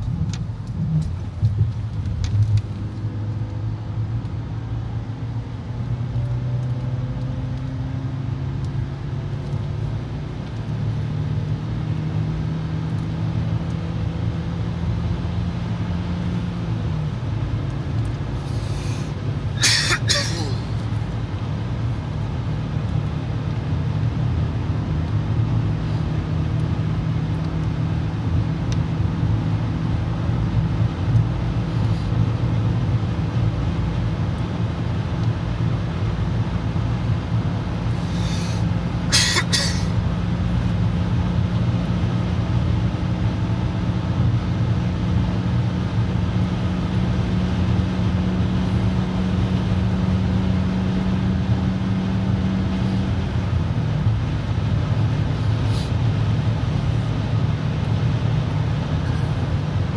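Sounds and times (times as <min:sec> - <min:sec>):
car engine hum: 0:00.0 - 0:59.9
road and tyre noise: 0:00.0 - 0:59.9.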